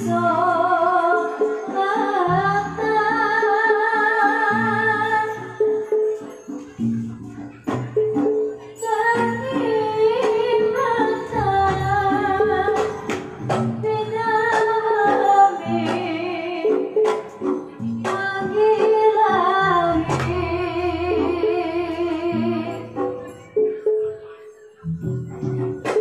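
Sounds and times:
woman singing: 0:00.0 - 0:05.9, 0:08.6 - 0:23.1
drum strokes: 0:06.2 - 0:21.8.

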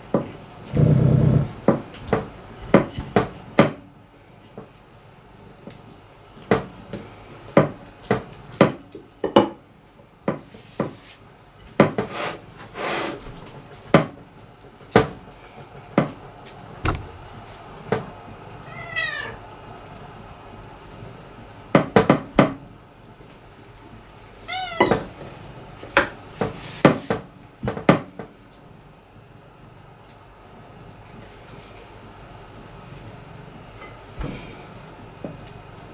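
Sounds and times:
rolling pin knocking on marble board: 0:16.8 - 0:17.5
cat meowing: 0:18.6 - 0:19.4, 0:24.5 - 0:25.0.

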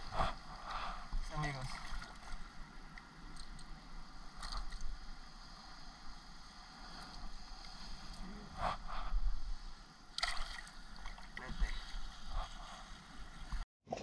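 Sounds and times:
water lapping and sloshing: 0:00.0 - 0:14.0
splash: 0:01.5 - 0:02.4, 0:10.1 - 0:11.5.

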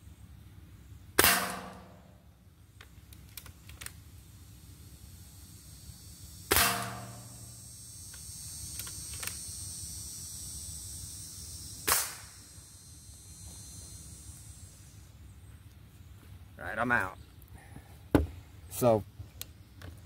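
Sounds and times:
air rifle shots: 0:01.2 - 0:02.1, 0:06.5 - 0:07.5, 0:11.8 - 0:12.4
pellet ringing on metal target: 0:01.2 - 0:02.2, 0:06.5 - 0:07.6.

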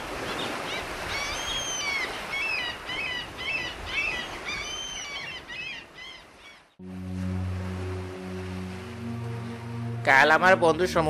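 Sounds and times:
surf washing: 0:00.0 - 0:05.5, 0:06.8 - 0:11.0.

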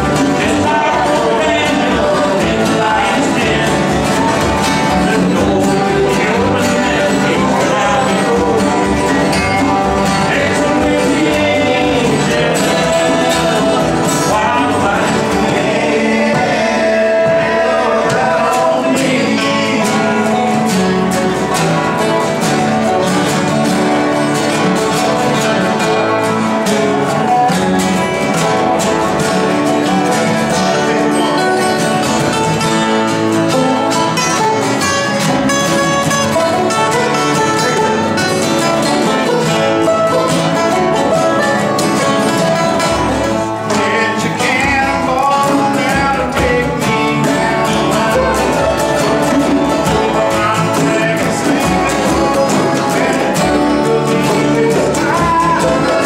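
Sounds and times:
acoustic guitars strumming: 0:00.0 - 0:56.0.

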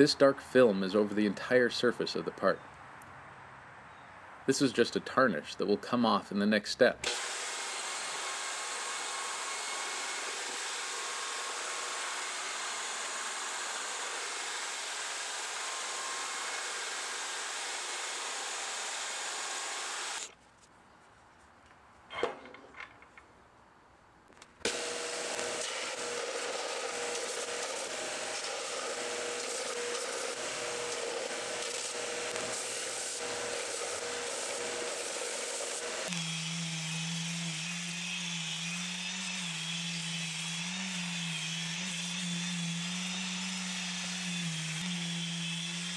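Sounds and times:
bandsaw cutting brass: 0:07.0 - 0:20.3, 0:24.7 - 0:45.9
belt sander grinding: 0:07.1 - 0:20.3, 0:24.6 - 0:45.9.

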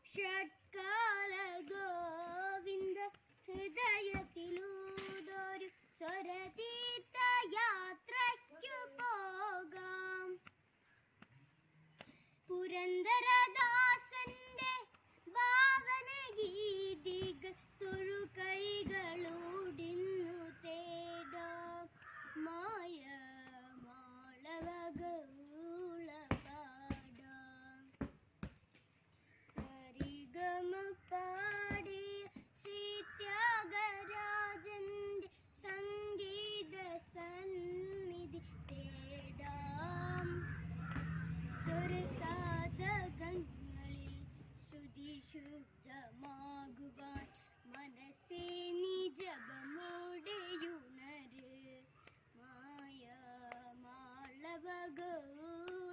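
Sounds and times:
boy singing solo: 0:32.8 - 0:47.1.

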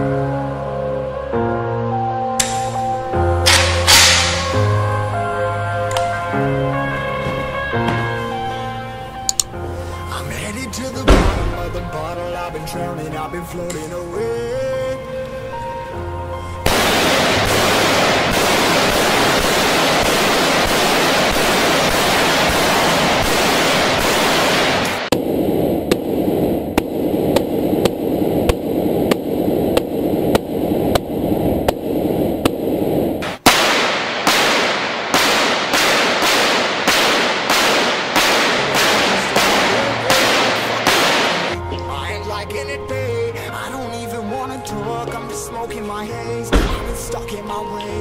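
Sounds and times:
rifle gunfire hitting windshield: 0:16.7 - 0:25.0, 0:33.4 - 0:41.6.

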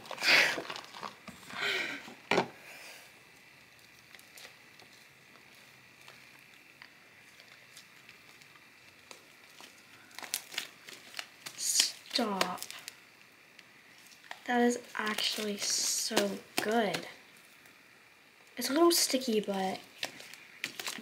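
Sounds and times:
slime being kneaded and squeezed: 0:07.1 - 0:13.0, 0:19.8 - 0:21.0.

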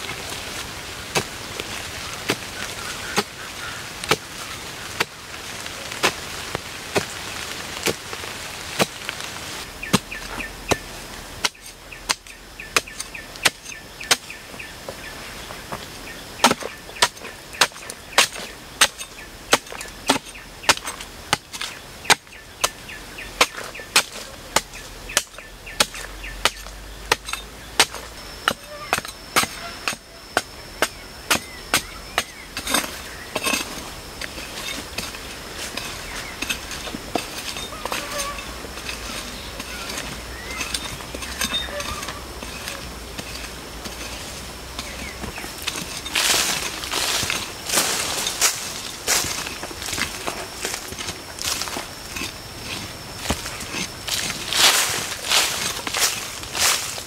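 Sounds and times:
metal blade chopping soil: 0:09.8 - 0:14.4, 0:16.4 - 0:56.7.

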